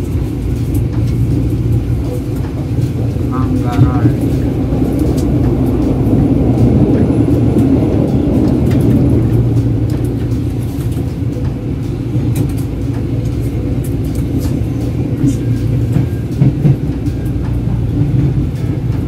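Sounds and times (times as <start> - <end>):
electric train rumbling: 0.0 - 19.0.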